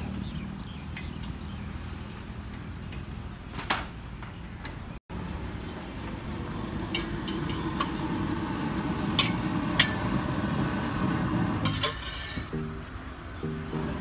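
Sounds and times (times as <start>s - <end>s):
steady low noise: 12.5s - 14.0s.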